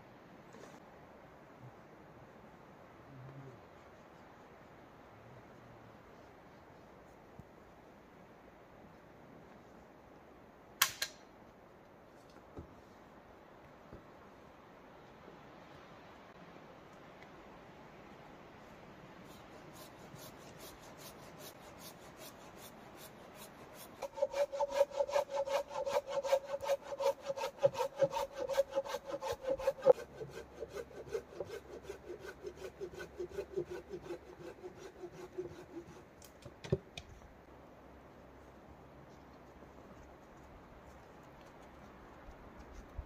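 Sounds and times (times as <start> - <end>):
hand saw sawing wood: 19.3 - 36.4.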